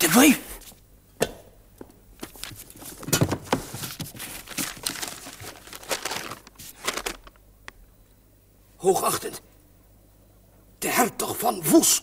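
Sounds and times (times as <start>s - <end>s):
paper rustling and crinkling: 2.2s - 7.4s.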